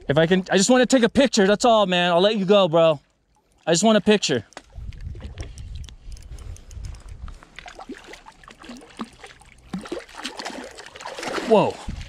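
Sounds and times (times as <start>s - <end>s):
fish splashing in water: 7.6s - 12.0s.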